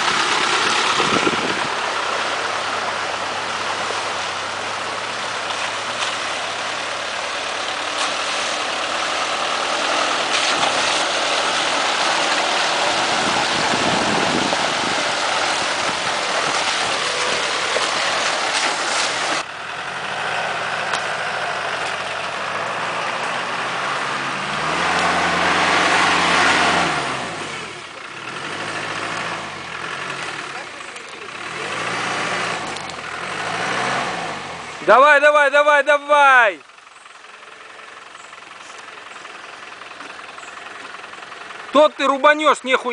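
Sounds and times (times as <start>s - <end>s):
water splashing: 0.0s - 19.5s
car engine revving: 0.0s - 35.0s
off-road vehicle engine: 0.0s - 42.9s.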